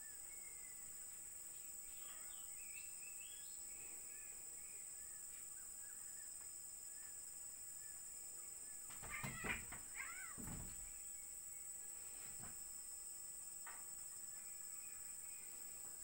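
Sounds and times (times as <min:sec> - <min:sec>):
bird chirps: 0:00.0 - 0:08.0
insect drone: 0:00.0 - 0:16.0
cats scuffling on wooden deck: 0:08.8 - 0:11.1, 0:12.0 - 0:12.8.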